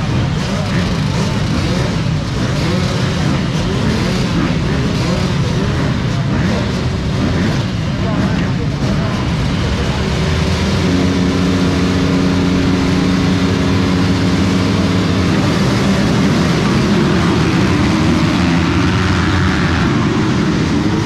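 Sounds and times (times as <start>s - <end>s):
motocross bike engines revving: 0.0s - 21.0s.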